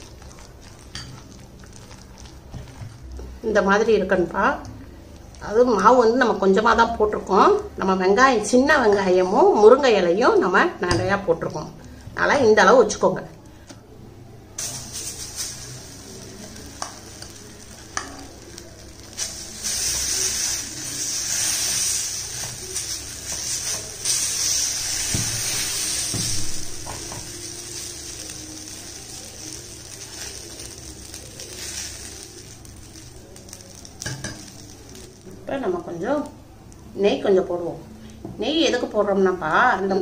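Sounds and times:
batter sizzling on a griddle: 0:14.6 - 0:35.5.

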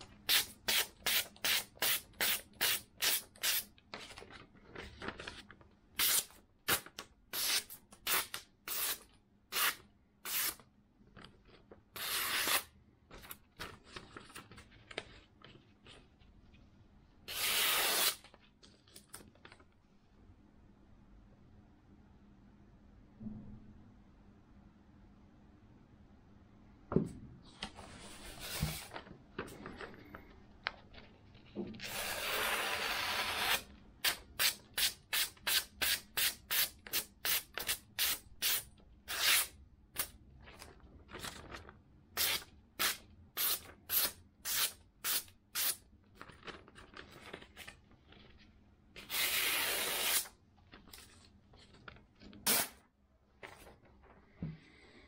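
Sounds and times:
knife slicing paper: 0:49.1 - 0:50.3.

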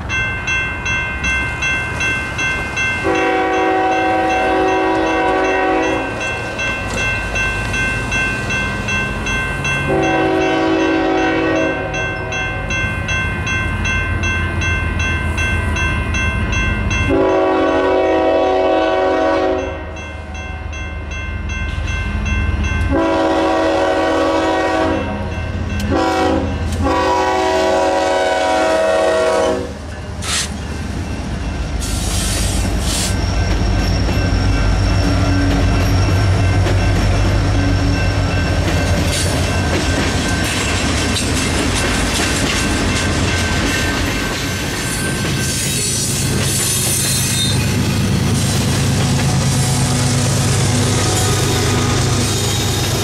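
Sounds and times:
crossing bell ringing: 0:00.0 - 0:53.0
locomotive air horn blasts: 0:03.0 - 0:06.1, 0:09.9 - 0:12.0, 0:17.1 - 0:19.9, 0:22.9 - 0:25.3, 0:25.9 - 0:30.4
locomotive engine and wheel rumble: 0:20.9 - 0:53.0.

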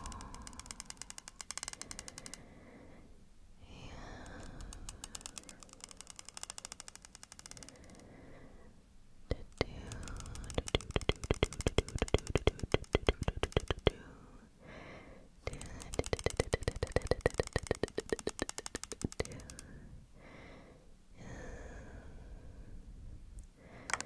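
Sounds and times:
comb teeth clicking on microphone: 0:00.0 - 0:02.4, 0:04.1 - 0:08.0, 0:09.3 - 0:14.0, 0:15.5 - 0:19.7.

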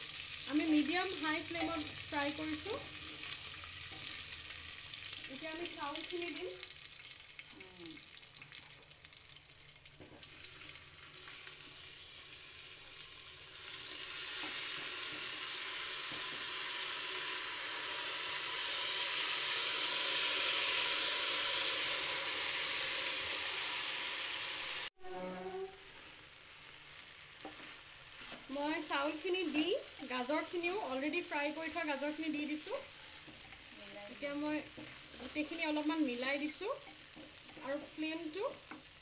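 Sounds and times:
loud sizzle of rice in hot oil: 0:00.0 - 0:39.0
nuts frying in ghee: 0:00.0 - 0:39.0
spatula stirring: 0:32.9 - 0:39.0.

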